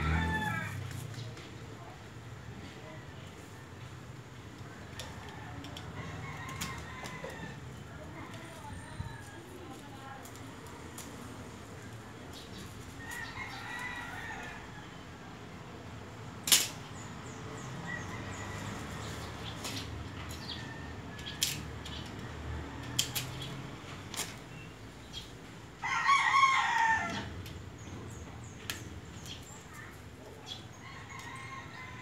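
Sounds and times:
rooster crowing: 0:00.0 - 0:00.9, 0:25.8 - 0:27.4, 0:30.8 - 0:32.0.

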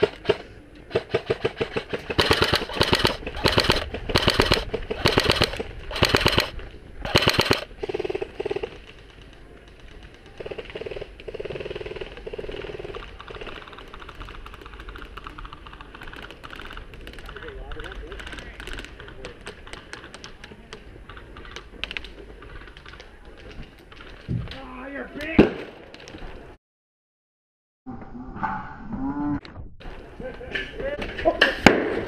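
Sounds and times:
airsoft rifle firing bursts: 0:00.0 - 0:08.7.

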